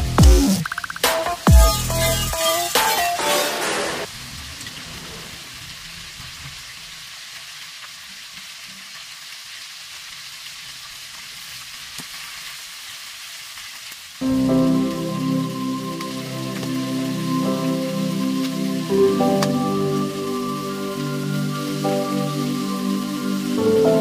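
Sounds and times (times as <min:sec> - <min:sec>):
background music: 0:00.0 - 0:04.1, 0:14.2 - 0:24.0
chicken sizzling in oil: 0:05.6 - 0:24.0.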